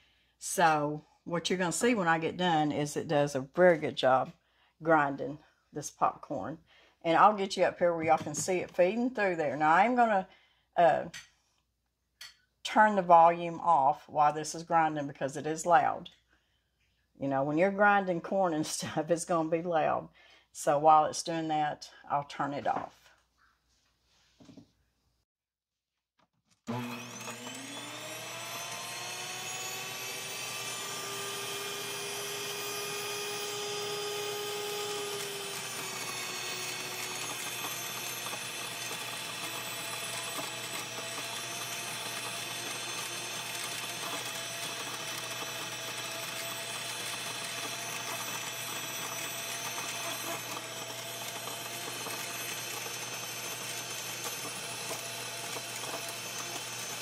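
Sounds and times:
electric grain mill whining: 26.6s - 57.0s.

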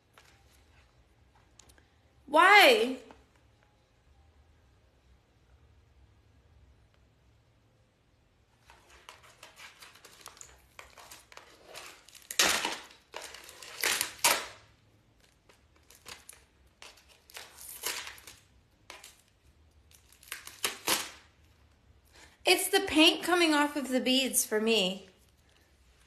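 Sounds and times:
packaging crinkling and rustling: 8.6s - 14.6s, 15.2s - 21.3s.

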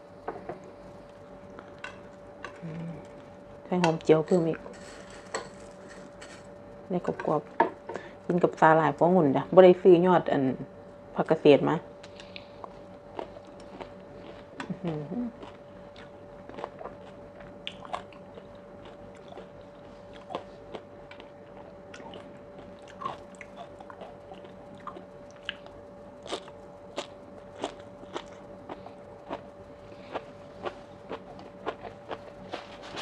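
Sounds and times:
faint steady hum: 0.0s - 33.0s
crunchy chewing: 12.0s - 33.0s.

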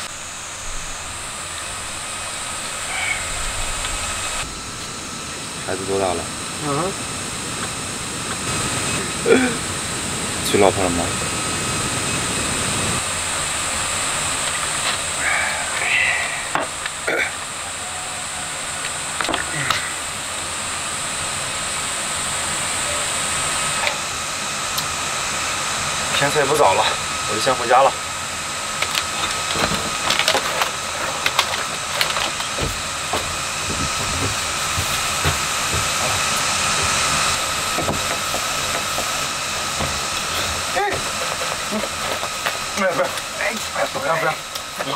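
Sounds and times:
carbonation hissing: 0.0s - 44.9s
knocks in wooden hut: 37.6s - 39.2s.

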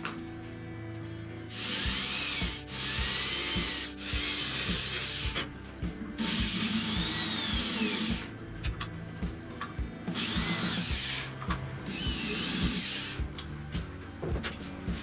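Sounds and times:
background music with steady beat: 0.0s - 15.0s
electric drill boring into wood: 1.5s - 5.5s, 6.2s - 8.4s, 10.1s - 13.4s.

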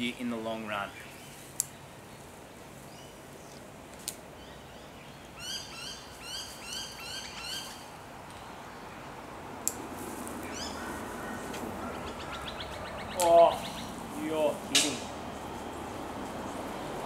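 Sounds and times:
steady background hiss: 0.0s - 17.0s
bird chirping: 4.4s - 9.2s, 10.4s - 16.8s.

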